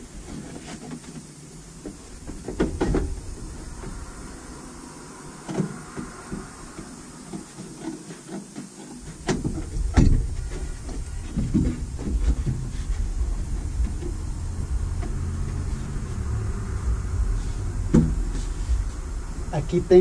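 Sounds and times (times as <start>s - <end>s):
cardboard rustling and scraping: 0.0s - 3.4s, 7.2s - 14.3s.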